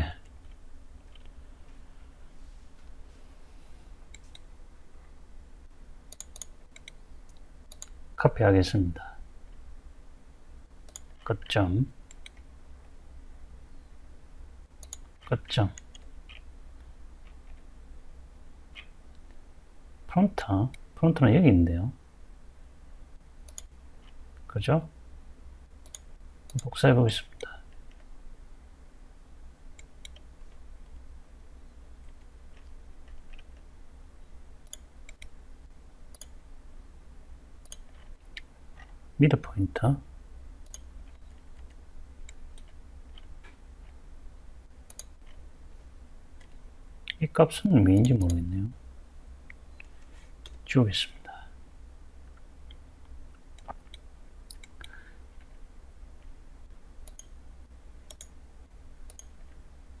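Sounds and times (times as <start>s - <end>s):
low steady hum: 0.0s - 60.0s
computer mouse clicks: 4.1s - 4.5s, 6.1s - 8.0s, 10.8s - 11.2s, 12.1s - 12.5s, 14.8s - 17.7s, 23.4s - 24.2s, 25.8s - 26.7s, 29.7s - 31.0s, 34.6s - 35.4s, 36.1s - 36.4s, 37.6s - 39.0s, 40.6s - 44.0s, 44.8s - 45.4s, 52.3s - 55.5s, 57.0s - 57.4s, 58.0s - 58.4s, 59.0s - 59.6s
faint computer mouse clicks: 6.1s - 8.0s, 10.9s - 11.2s, 14.8s - 15.1s, 23.5s - 24.2s, 25.8s - 26.7s, 37.6s - 38.9s, 44.9s - 45.4s, 53.6s - 55.0s, 57.0s - 57.4s, 58.1s - 58.4s, 59.1s - 59.4s.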